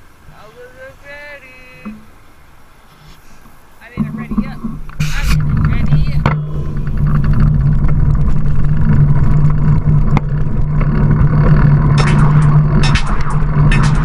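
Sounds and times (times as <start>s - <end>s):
short hisses: 2.8s - 3.8s
wind buffeting microphone: 3.8s - 14.0s.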